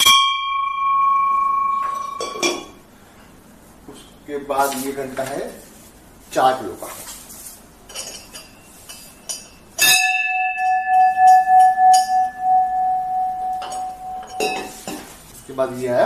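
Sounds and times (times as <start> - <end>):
bell ringing: 0.0 - 2.7, 8.4 - 14.9
light metal clinks: 7.9 - 15.1
knock stopping bell: 9.8 - 14.8.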